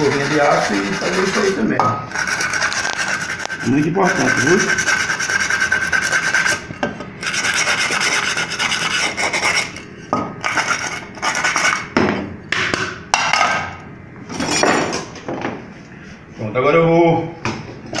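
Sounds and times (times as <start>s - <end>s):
wire brush scrubbing metal: 0.0s - 6.6s, 7.2s - 9.8s.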